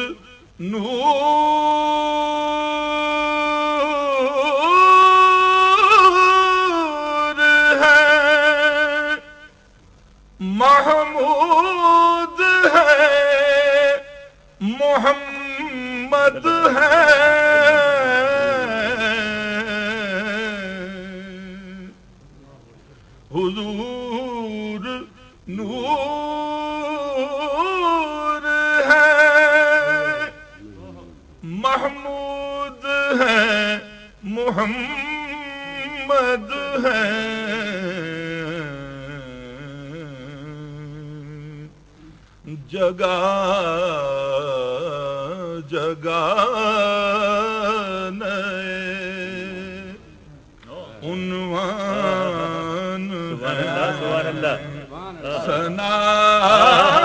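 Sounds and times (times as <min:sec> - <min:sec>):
man singing solo: 0:10.4 - 0:22.0, 0:23.3 - 0:41.7, 0:50.7 - 0:57.0.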